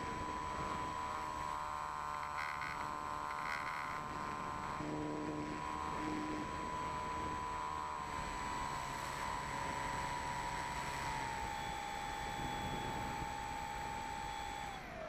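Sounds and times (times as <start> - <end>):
electric motor and propeller whine: 0.0 - 15.0.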